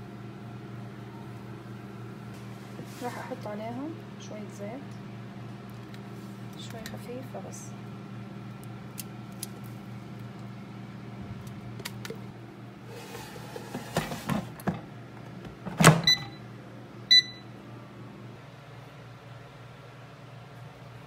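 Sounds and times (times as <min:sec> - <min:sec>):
low steady hum: 0:00.0 - 0:21.0
air fryer basket clattering: 0:13.0 - 0:16.4
short electronic beeps: 0:17.1 - 0:17.4.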